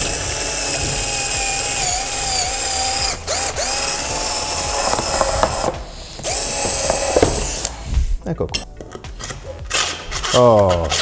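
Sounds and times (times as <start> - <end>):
cordless drill boring into wood: 0.0 - 7.8
drill clicks: 0.0 - 7.8.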